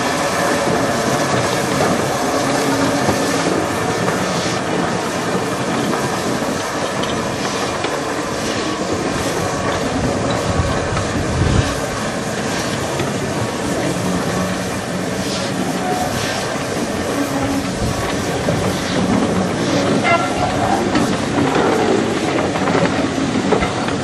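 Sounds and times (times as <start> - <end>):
steam train running past: 0.0 - 24.0.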